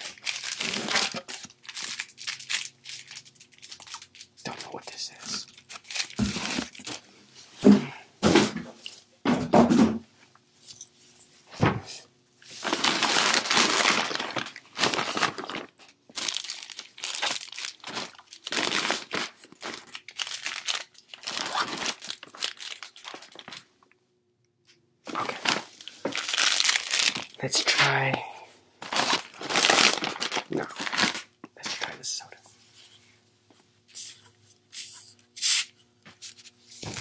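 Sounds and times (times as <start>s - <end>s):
plastic bags crinkling: 0.0s - 7.1s, 12.5s - 23.8s, 25.1s - 28.2s, 28.8s - 32.0s.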